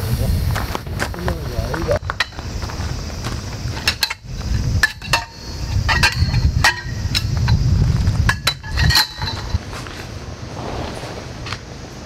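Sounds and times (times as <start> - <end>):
metal pole sections clinking: 3.8 - 7.6, 8.2 - 9.6.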